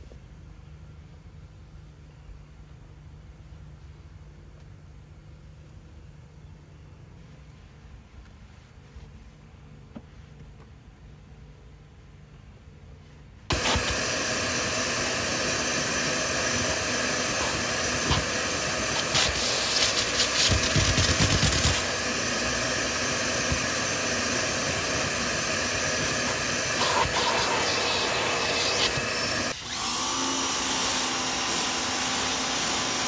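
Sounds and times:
vacuum cleaner on carpet: 13.5s - 33.0s.

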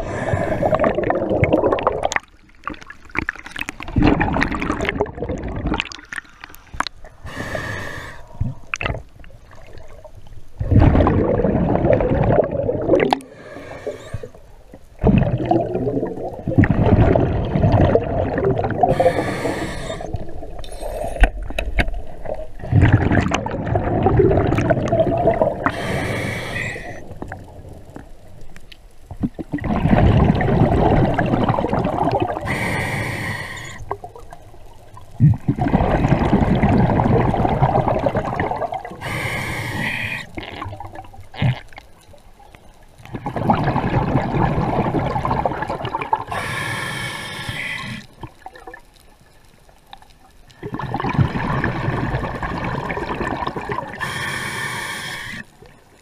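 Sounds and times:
diver inhaling through regulator: 0.0s - 1.0s, 6.4s - 8.6s, 13.2s - 14.4s, 18.8s - 21.3s, 25.6s - 27.1s, 32.4s - 34.0s, 39.0s - 40.4s, 46.3s - 48.2s, 53.9s - 55.5s
rush of exhaled bubbles: 0.0s - 14.4s, 15.0s - 27.5s, 29.2s - 34.3s, 35.2s - 41.6s, 43.1s - 48.8s, 50.6s - 54.3s.

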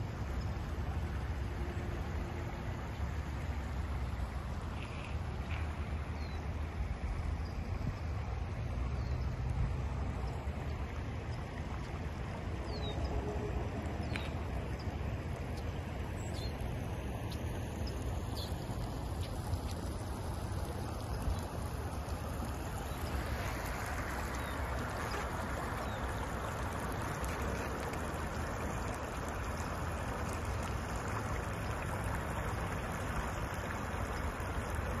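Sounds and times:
floodwater rushing: 0.0s - 35.0s.

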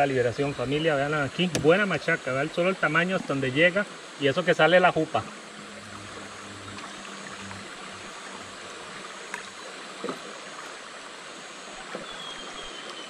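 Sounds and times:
river current rushing: 0.0s - 13.0s
light knocks: 1.4s - 1.8s.

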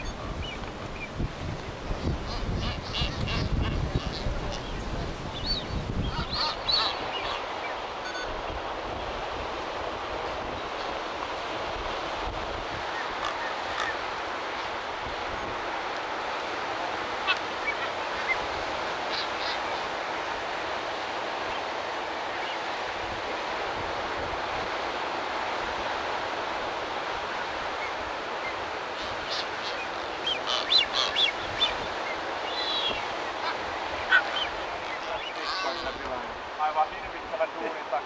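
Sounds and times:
surf on rocky coast: 0.0s - 38.0s
wind: 0.0s - 38.0s.

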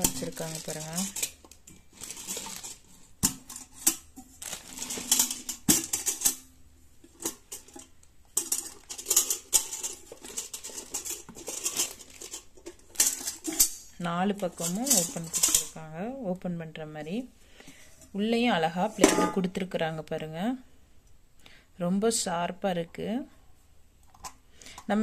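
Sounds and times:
metal clinks and scrapes: 0.0s - 15.8s
rustling: 0.0s - 15.8s.

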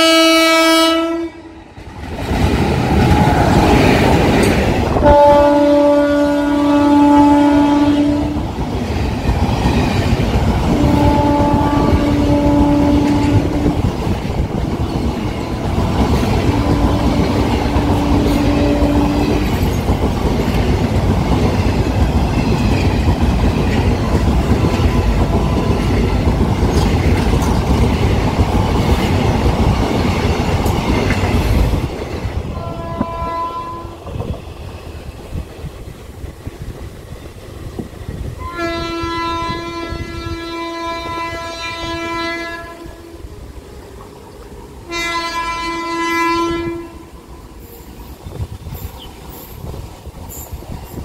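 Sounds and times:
train horn blasts: 0.0s - 1.6s, 4.9s - 8.5s, 10.7s - 14.0s, 16.4s - 19.7s, 32.5s - 34.4s, 38.4s - 43.4s, 44.8s - 47.4s
train wheels clattering on rails: 1.8s - 6.4s, 8.1s - 33.4s, 47.6s - 51.0s.

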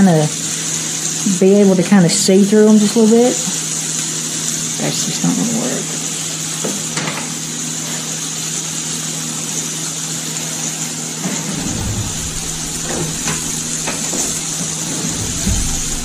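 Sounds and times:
vegetables sizzling in a frying pan: 0.0s - 11.8s
low rumble: 11.5s - 16.0s
steady low hum: 11.5s - 16.0s.

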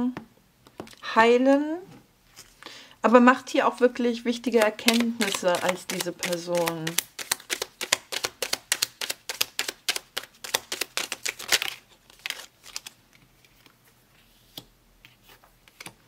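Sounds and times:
cards being shuffled: 4.4s - 13.7s
cards laid on cloth: 4.5s - 11.4s.

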